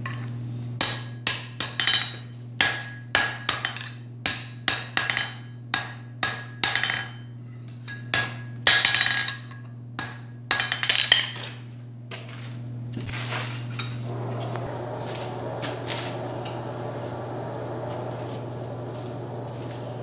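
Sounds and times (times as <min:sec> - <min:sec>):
steady low hum: 0:00.0 - 0:20.0
hammer striking steel on anvil: 0:00.8 - 0:07.3, 0:07.9 - 0:11.4
rough rustling in coal forge: 0:11.4 - 0:20.0.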